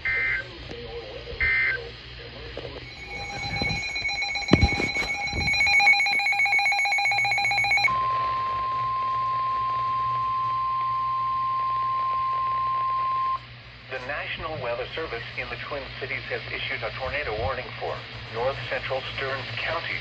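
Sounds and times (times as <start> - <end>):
pulsing electronic alarm beep: 2.8 - 13.4
steady alarm tone: 2.8 - 13.4.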